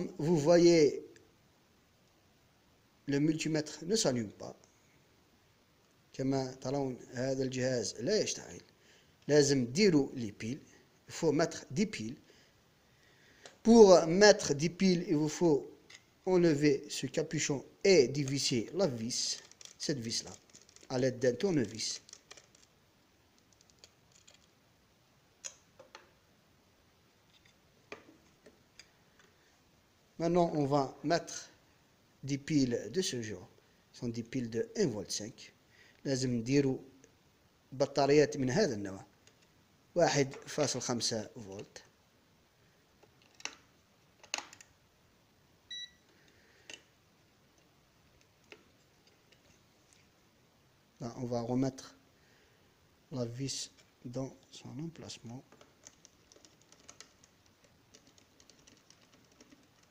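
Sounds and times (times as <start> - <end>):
short electronic beep: 45.7 - 46.0.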